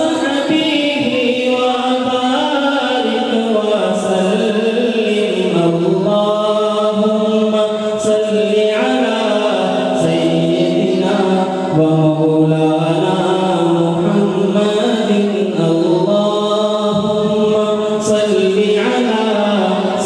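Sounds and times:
man singing unaccompanied: 0.0 - 20.0.

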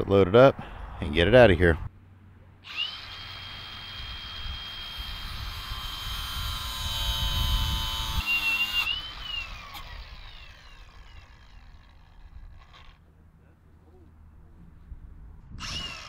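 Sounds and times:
power saw cutting wood: 2.6 - 13.0, 15.6 - 16.0
saw motor spinning down whine: 2.6 - 13.0, 15.6 - 16.0.

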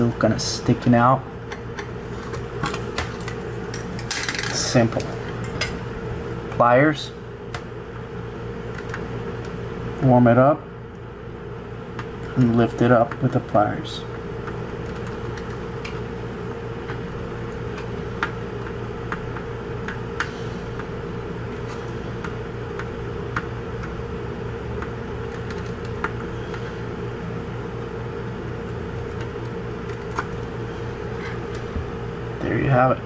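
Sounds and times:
steady background hum: 0.0 - 33.0.

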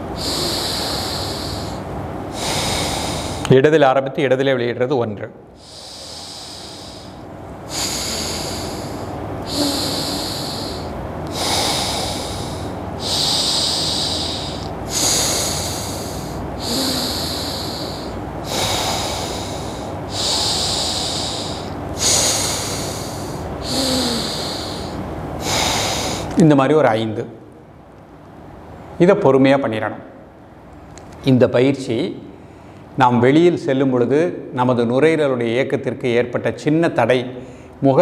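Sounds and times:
man breathing through nostril: 0.1 - 3.5, 5.6 - 26.4.

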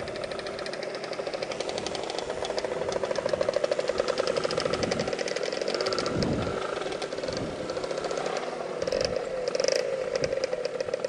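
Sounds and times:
scooter engine running: 0.0 - 11.0.

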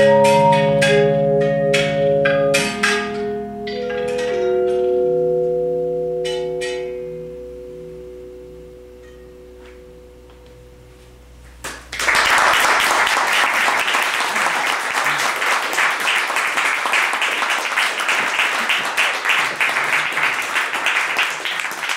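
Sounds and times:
sustained harp tones: 0.0 - 12.0
audience applauding: 11.6 - 21.9.

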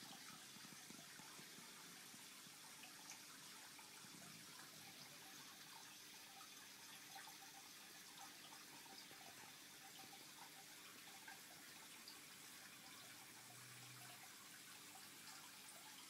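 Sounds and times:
aquarium water trickling: 0.0 - 16.0
small water drips: 0.0 - 16.0.

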